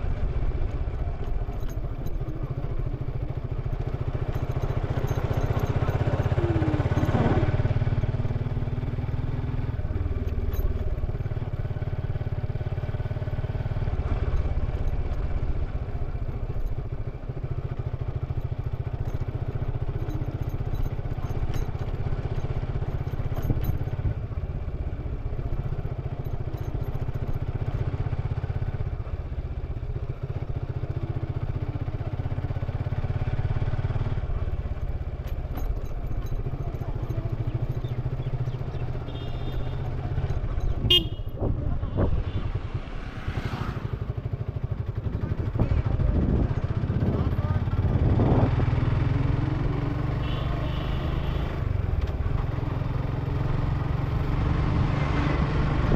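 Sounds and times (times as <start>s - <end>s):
motorcycle engine running: 0.0s - 55.9s.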